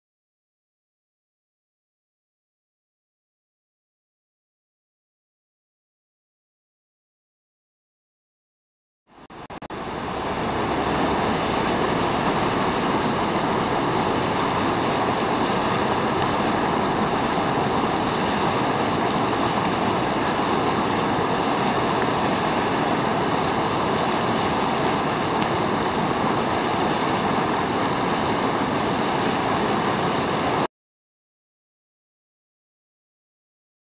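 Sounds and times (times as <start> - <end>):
water bubbling and rushing: 9.3 - 30.7.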